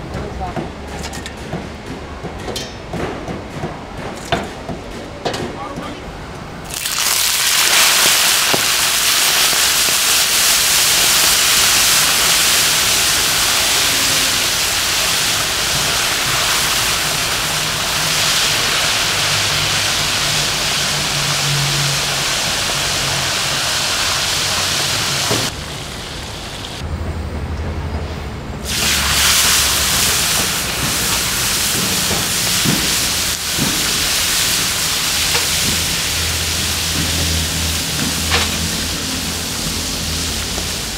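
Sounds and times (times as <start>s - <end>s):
deep-frying sizzle and hiss: 6.6s - 26.8s, 28.6s - 40.9s.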